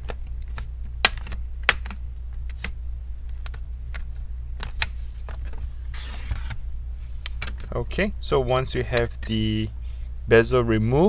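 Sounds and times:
plastic clips popping: 0:00.0 - 0:04.9
steady low hum: 0:00.0 - 0:11.0.

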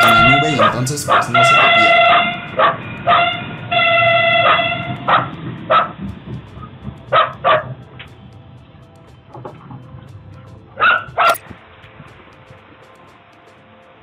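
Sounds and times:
dog barking: 0:00.0 - 0:03.4, 0:04.4 - 0:06.0, 0:07.1 - 0:07.8
multi-tone train horn: 0:00.0 - 0:05.3
train rumbling: 0:00.0 - 0:12.7.

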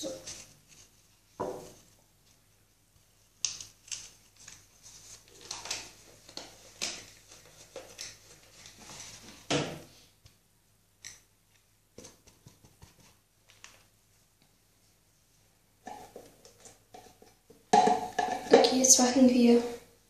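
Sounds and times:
fabric rustling: 0:00.0 - 0:09.4.

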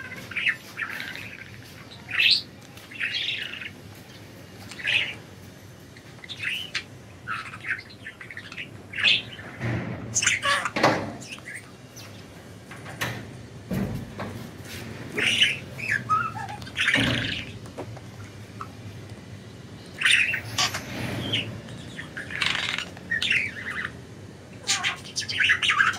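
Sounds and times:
budgerigars chirping: 0:00.3 - 0:03.8, 0:04.7 - 0:05.2, 0:06.2 - 0:12.2, 0:15.1 - 0:17.6, 0:19.8 - 0:24.0, 0:24.6 - 0:25.9.

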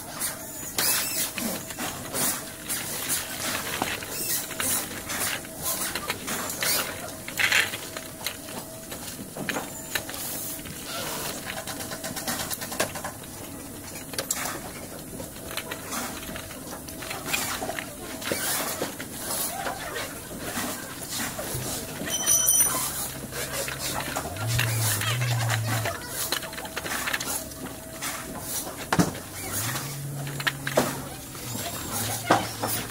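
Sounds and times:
wagon frame clicking and rattling: 0:11.1 - 0:32.9.

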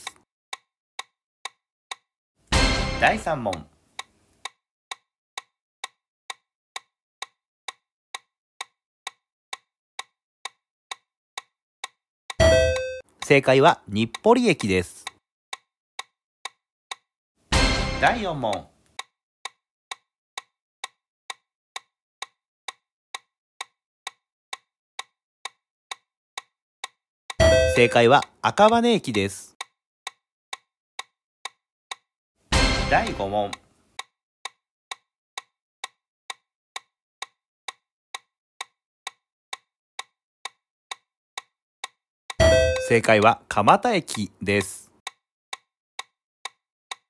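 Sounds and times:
countdown timer ticks: 0:01.0 - 0:15.2, 0:17.6 - 0:32.0, 0:32.6 - 0:47.0
countdown timer ticking: 0:01.9 - 0:03.7, 0:11.8 - 0:15.2, 0:17.6 - 0:18.7, 0:27.3 - 0:29.7, 0:31.9 - 0:33.7, 0:41.8 - 0:44.8.

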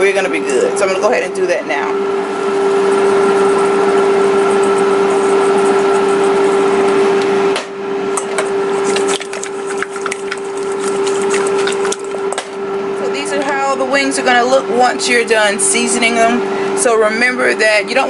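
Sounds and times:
steady hum: 0:00.0 - 0:18.0
wings tossed in metal bowl: 0:08.2 - 0:12.3
seasoning shaken from shakers: 0:08.8 - 0:12.2.

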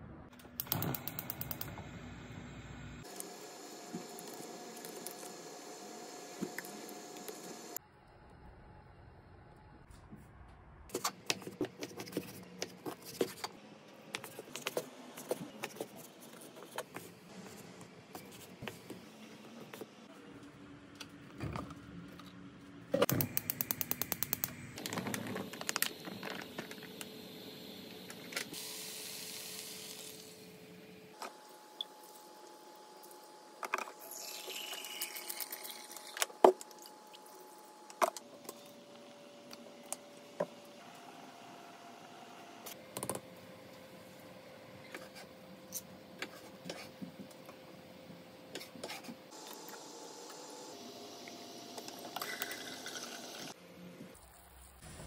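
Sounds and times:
gas stove igniter clicks: 0:00.6 - 0:01.8
gas stove hiss: 0:00.6 - 0:07.8, 0:23.1 - 0:30.6.

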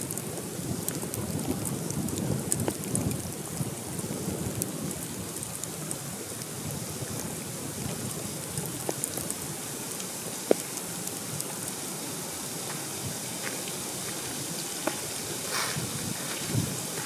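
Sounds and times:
sharp raindrop ticks: 0:00.0 - 0:11.8
steady rain in woods: 0:00.0 - 0:17.0.

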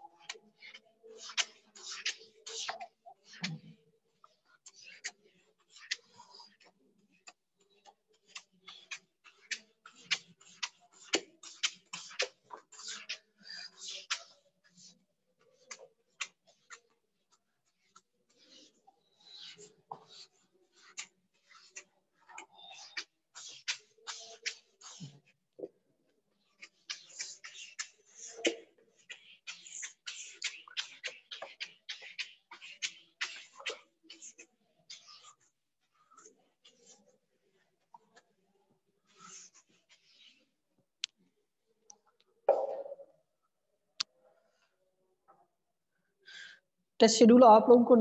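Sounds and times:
eraser wiping whiteboard: 0:00.2 - 0:25.4, 0:26.3 - 0:40.6
duster scrubbing whiteboard: 0:08.2 - 0:25.4, 0:39.0 - 0:40.5.

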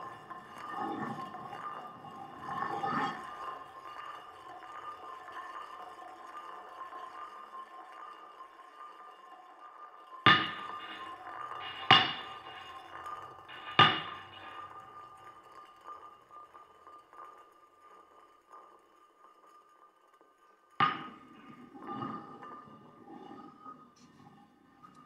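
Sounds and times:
faint steady ringing tone: 0:00.0 - 0:25.0
sharp struck ringing hits: 0:10.3 - 0:12.9, 0:13.5 - 0:14.6.

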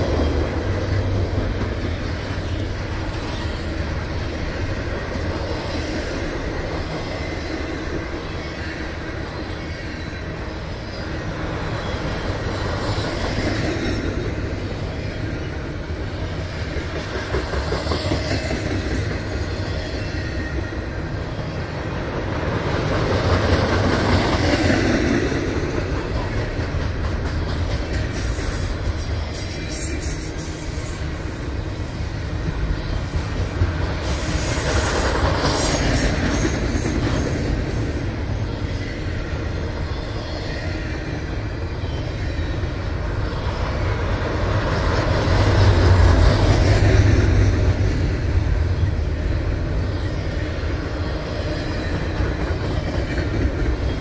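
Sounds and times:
high wheel squeals: 0:00.0 - 0:16.6
freight train wheels rumbling: 0:00.0 - 0:54.0.

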